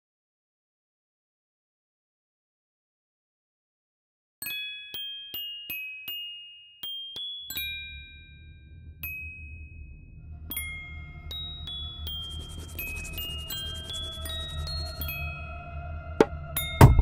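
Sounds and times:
tinkling bell-like melody: 0:04.4 - 0:17.0
low steady drone: 0:07.9 - 0:17.0.

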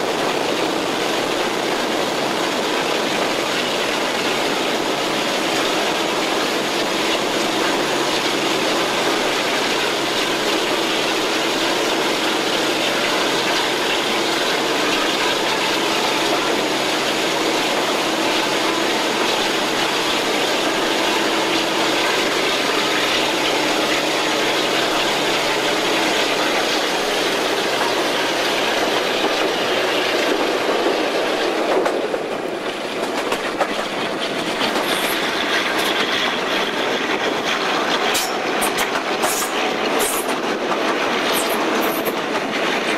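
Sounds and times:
locomotive engine drone: 0:00.0 - 0:42.9
train wheels rushing on rail: 0:00.0 - 0:42.9.

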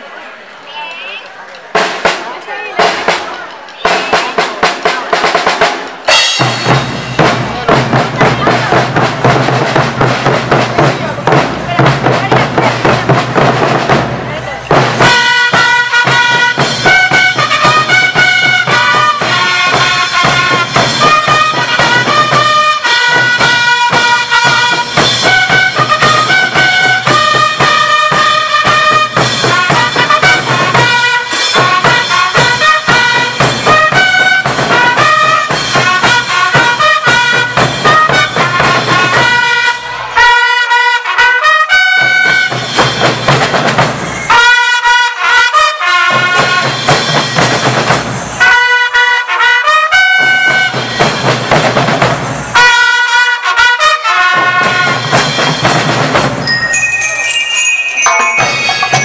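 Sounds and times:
snare drums: 0:01.5 - 0:59.0
cymbals: 0:01.7 - 0:59.0
bass drums: 0:01.8 - 0:39.4, 0:42.2 - 0:44.3, 0:46.1 - 0:48.4, 0:50.2 - 0:52.6, 0:54.4 - 0:56.5
trumpet and bell-lyre melody: 0:05.2 - 0:59.0.

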